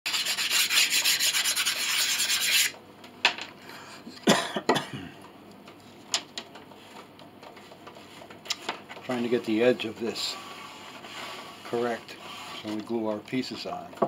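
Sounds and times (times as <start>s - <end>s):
file rasping on wood: 0.1s - 2.7s.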